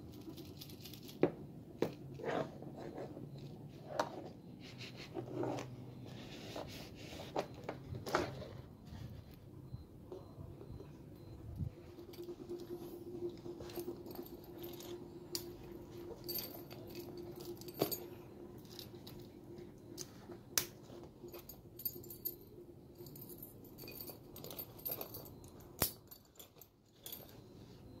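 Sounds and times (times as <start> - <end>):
keys jangling: 0.0 - 1.2, 13.6 - 19.3, 23.0 - 27.4.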